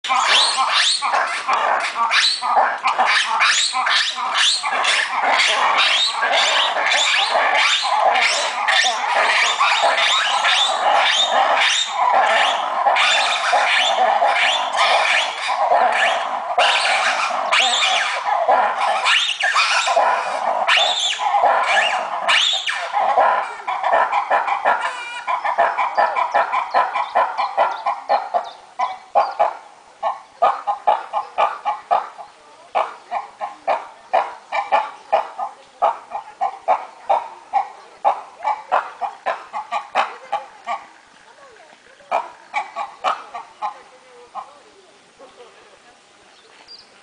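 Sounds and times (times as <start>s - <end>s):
lemurs roar-shriek chorus: 0.0s - 27.7s
lemurs pulsed calls: 0.0s - 45.6s.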